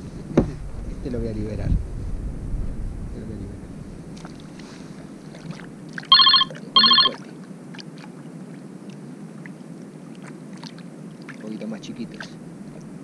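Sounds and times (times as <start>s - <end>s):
low background noise: 0.0s - 13.0s
electronic trilling rings: 6.1s - 7.2s.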